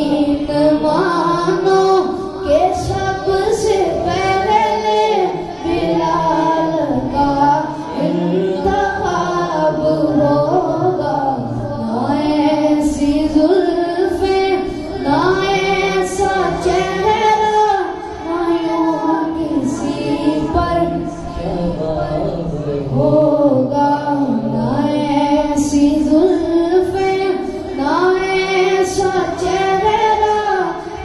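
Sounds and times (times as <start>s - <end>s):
boy singing into microphone: 0.0s - 31.0s.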